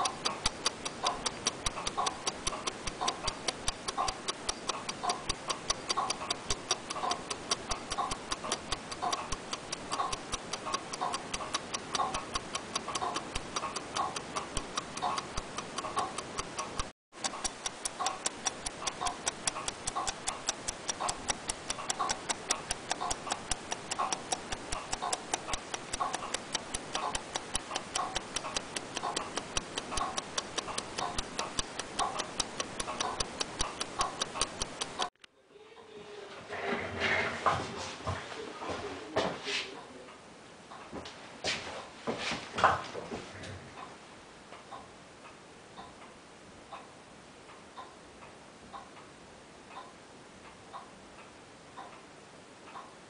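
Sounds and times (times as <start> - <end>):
clockwork ticking: 0.0 - 35.2.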